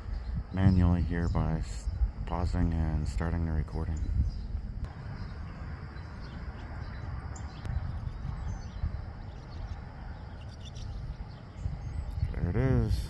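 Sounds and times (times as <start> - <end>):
wind buffeting microphone: 0.0 - 13.0
faint bird chirps: 2.8 - 13.0.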